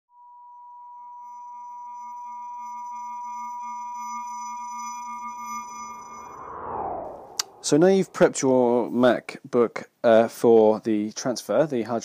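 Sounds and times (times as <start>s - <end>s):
electronic sine tone: 0.2s - 8.3s
low hum: 3.4s - 9.1s
whooshing swell: 5.7s - 9.1s.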